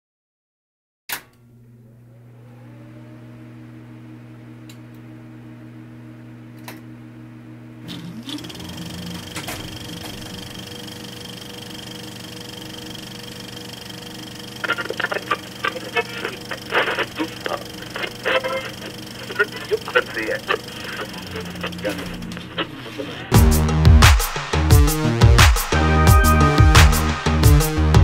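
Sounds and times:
film projector click: 1.1 - 1.4, 7.9 - 15.0
projector motor whirring: 1.6 - 23.5
high steady whine: 8.0 - 28.0.

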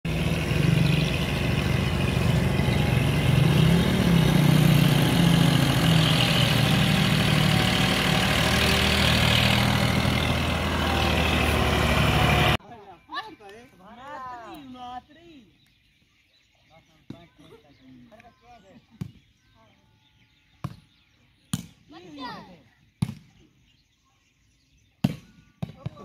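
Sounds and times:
diesel tractor engine running: 0.0 - 12.6.

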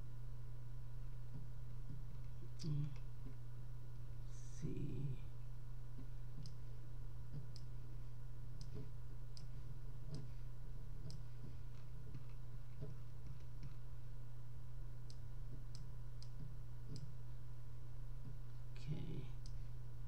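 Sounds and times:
low electrical hum: 0.0 - 20.0
computer mouse clicking: 6.4 - 6.6, 7.3 - 7.7, 8.6 - 10.4, 11.0 - 13.8, 15.1 - 17.1.

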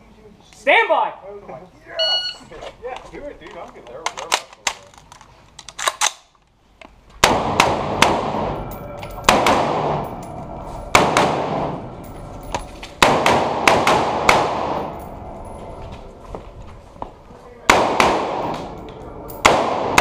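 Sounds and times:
rifle gunshots ringing indoors: 7.2 - 12.0, 12.9 - 15.2, 17.6 - 20.0.

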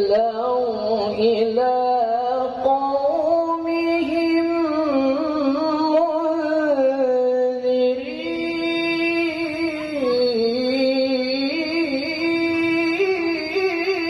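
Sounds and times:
man reciting melodically into microphone: 0.0 - 14.0.

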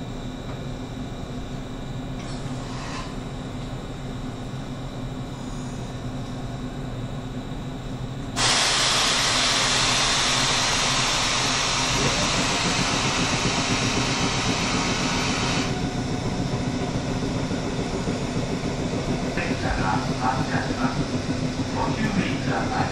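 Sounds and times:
electric train humming: 6.2 - 22.9
compressed air hissing: 8.4 - 13.0.

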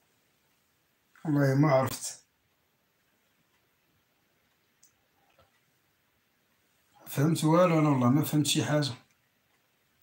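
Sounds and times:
man speaking: 1.2 - 2.3, 7.0 - 9.1.

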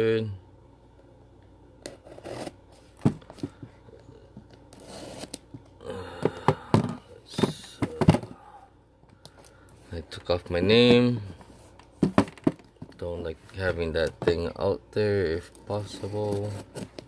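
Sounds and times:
knocks on cardboard box: 3.0 - 3.6, 12.0 - 12.6.

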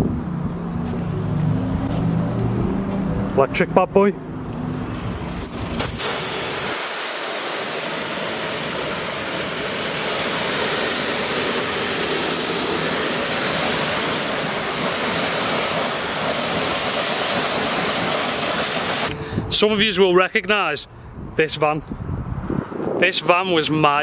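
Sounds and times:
pressure washer spraying: 5.4 - 19.1.

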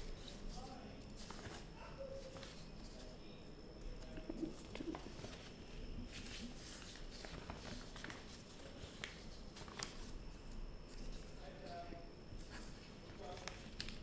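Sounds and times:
paper rustling and scraping: 0.0 - 3.2, 4.5 - 10.2.

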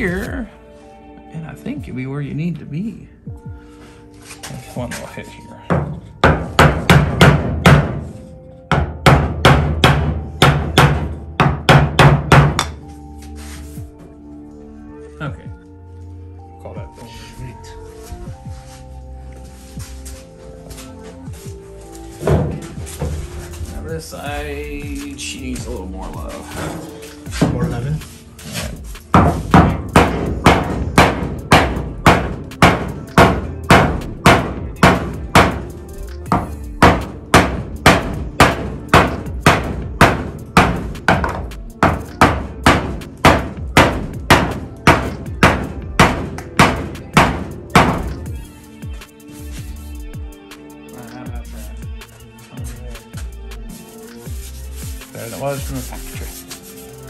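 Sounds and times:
hammer striking wood on metal: 5.7 - 12.8, 29.1 - 35.7, 36.3 - 48.3.

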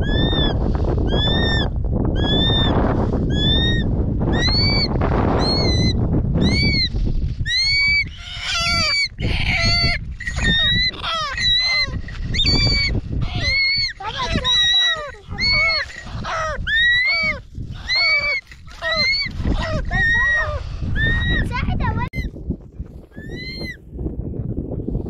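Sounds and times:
eagle whistled cry: 0.0 - 6.9, 23.2 - 23.8
wind rumble on microphone: 0.0 - 25.0.

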